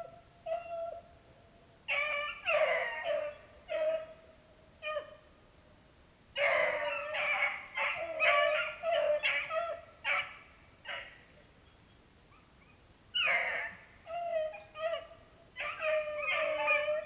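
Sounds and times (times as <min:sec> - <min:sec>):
beagles baying: 0:06.4 - 0:11.3, 0:12.4 - 0:17.0.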